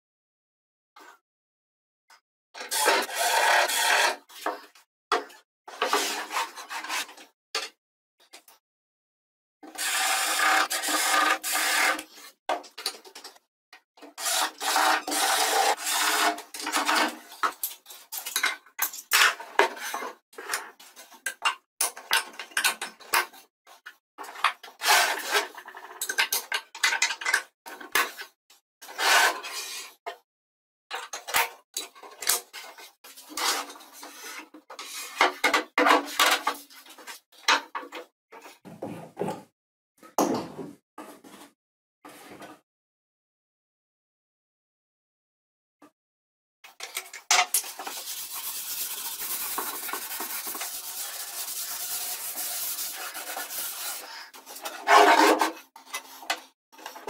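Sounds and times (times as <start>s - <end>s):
rubbing and scraping on plywood: 5.7s - 7.2s, 9.8s - 12.4s, 14.1s - 18.0s, 24.3s - 25.9s, 28.8s - 30.0s, 32.4s - 37.2s, 47.5s - 57.0s.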